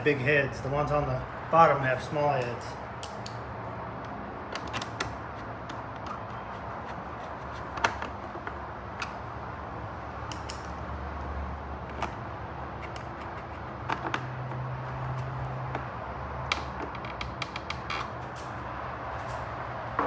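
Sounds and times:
screwdriver and bolts clicking: 4.6 - 9.2, 12.8 - 14.2.

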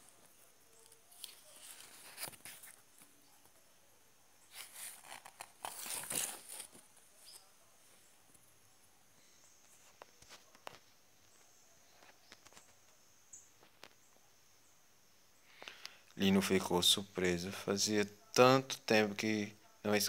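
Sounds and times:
paper page rustling: 0.0 - 3.5, 4.5 - 7.5.

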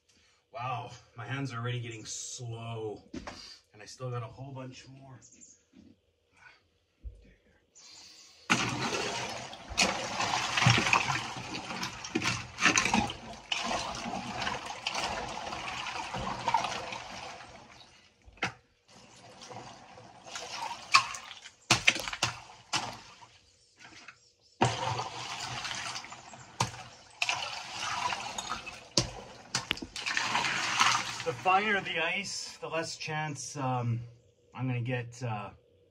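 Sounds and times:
ice water sloshing: 8.5 - 32.0.

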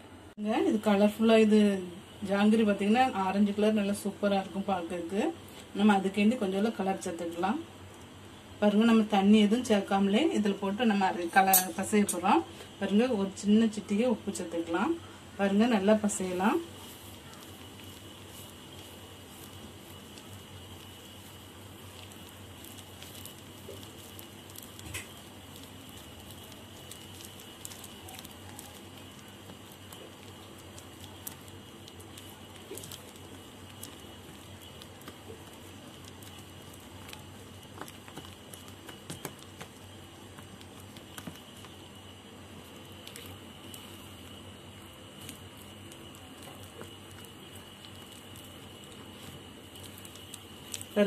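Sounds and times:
steady background hiss: 0.0 - 51.0
hand mixing wet batter: 14.3 - 51.0.

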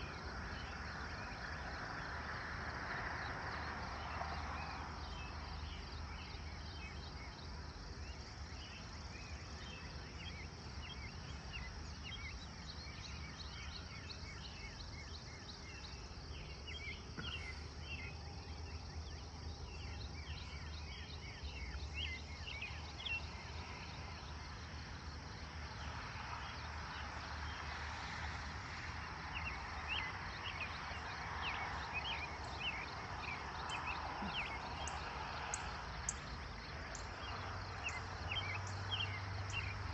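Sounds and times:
insects droning: 0.0 - 39.9
birds chirping: 29.3 - 39.9.

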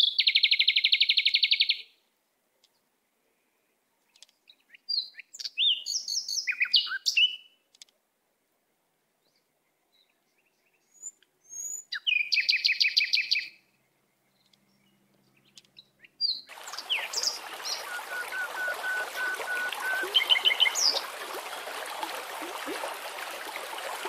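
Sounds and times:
birds calling: 14.4 - 24.0
bird trill: 16.2 - 21.2
stream running over stones: 16.5 - 24.0.

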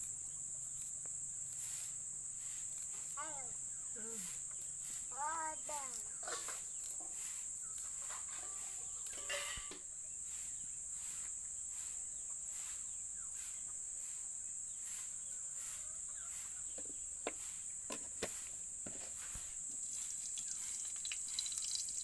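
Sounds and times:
crickets chirping: 0.0 - 22.0.

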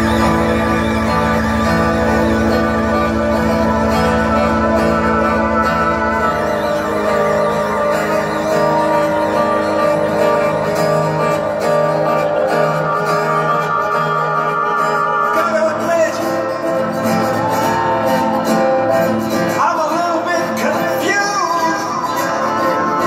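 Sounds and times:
pulsing bass line: 0.0 - 15.9
electric guitar chords: 0.0 - 23.0
sliding guitar melody: 0.0 - 23.0.

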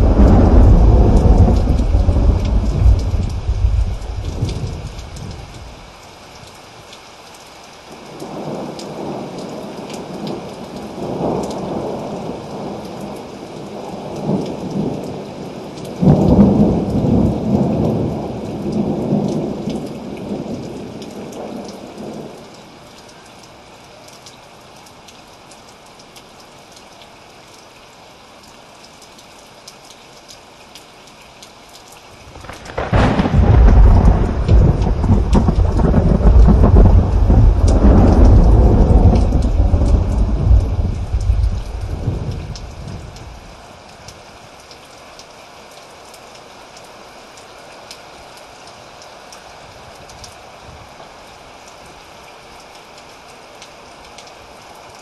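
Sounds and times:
loud thunder clap: 0.0 - 4.9, 32.4 - 43.0
rolling thunder: 0.0 - 5.8, 32.3 - 43.4
heavy rain: 0.0 - 55.0.

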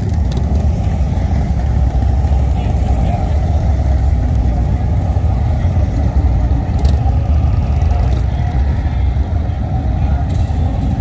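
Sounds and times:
motorcycle engines at low speed: 0.0 - 11.0.

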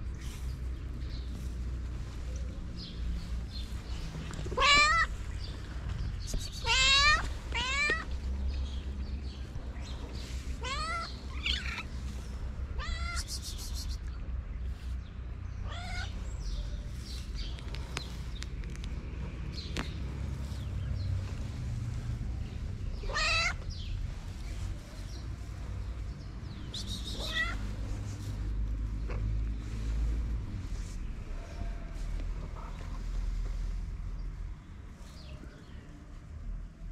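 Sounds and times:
cat meowing: 4.5 - 5.1, 6.6 - 8.1, 10.6 - 11.9, 12.8 - 13.4, 15.6 - 16.2, 23.0 - 23.6, 27.1 - 27.6.

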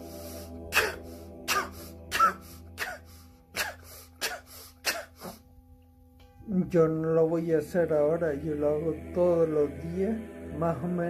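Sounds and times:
man puffing air out: 0.0 - 5.4
faint musical drone: 0.0 - 11.0.

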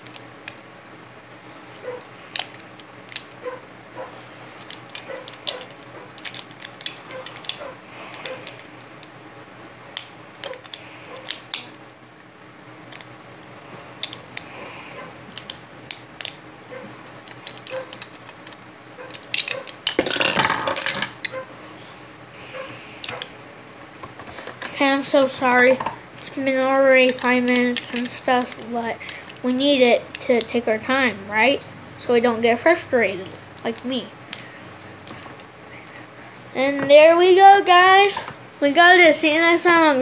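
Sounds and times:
plastic bricks clicking: 17.3 - 21.4.

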